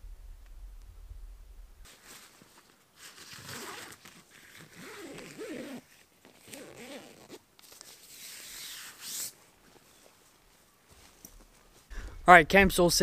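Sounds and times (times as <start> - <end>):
tent zipper being pulled: 3.0 - 7.4, 8.0 - 9.4.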